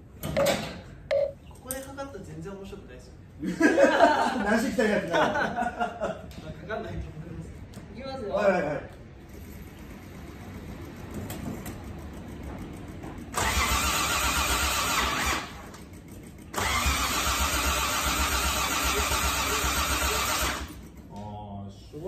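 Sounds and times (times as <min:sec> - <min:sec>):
starter motor cranking engine: 0:13.3 - 0:21.1.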